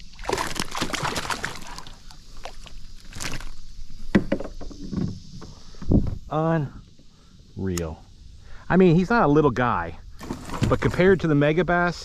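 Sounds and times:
water splashing against kayak: 0.0 - 3.6, 10.2 - 11.1
knocks on kayak: 4.1 - 5.2.

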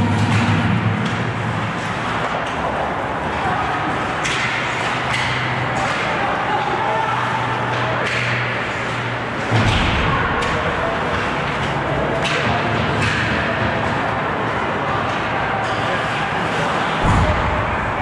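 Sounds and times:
hockey sticks and puck clacking: 0.0 - 18.0
murmur of voices: 0.0 - 18.0
heavy thud: 17.0 - 18.0.

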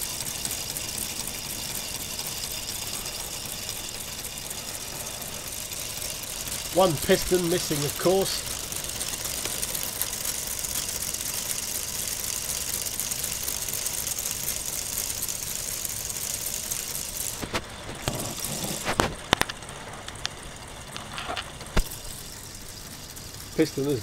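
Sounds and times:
plastic model engine whirring clatter: 0.0 - 24.0
plastic pieces clicking: 4.7 - 16.0.

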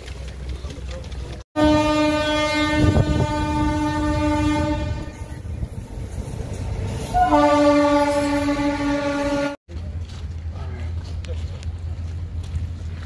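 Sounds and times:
train horn blast: 1.6 - 5.4, 7.1 - 9.6.

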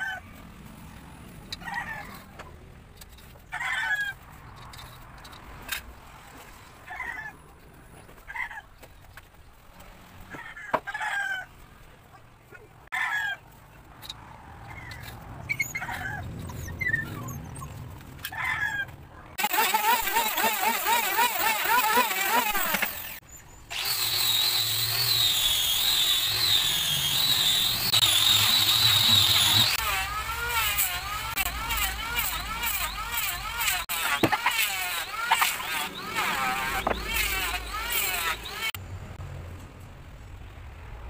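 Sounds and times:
electric wood planer whining: 19.4 - 38.8.

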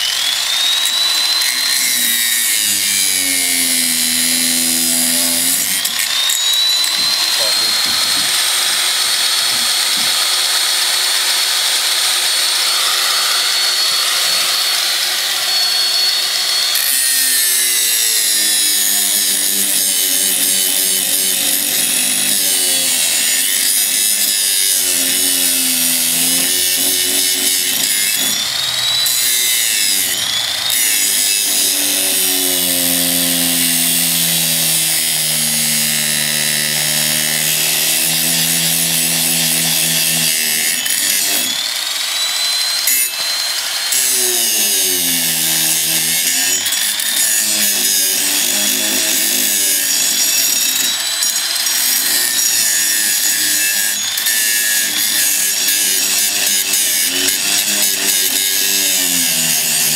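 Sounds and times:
angle grinder grinding steel: 0.0 - 59.9.

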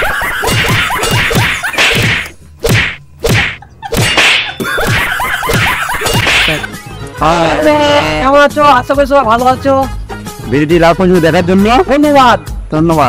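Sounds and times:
whip-like whacks: 1.3 - 4.5, 5.5 - 6.6.

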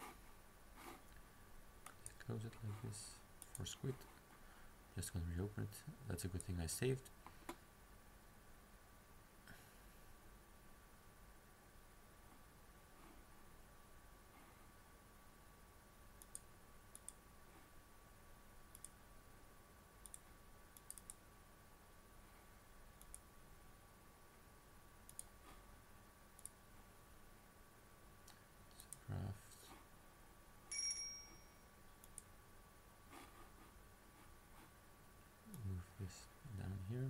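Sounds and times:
computer mouse clicks: 1.8 - 2.2, 3.4 - 3.7, 16.2 - 17.2, 18.7 - 19.0, 20.0 - 21.2, 23.0 - 23.3, 25.1 - 25.4, 26.4 - 26.6, 32.0 - 32.3.

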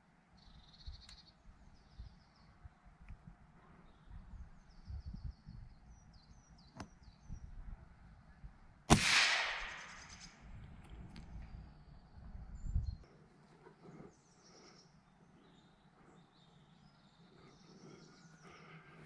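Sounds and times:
small birds chirping: 0.4 - 8.6, 9.8 - 19.0
low outdoor rumble: 0.7 - 14.2
air rifle firing: 8.9 - 10.3.

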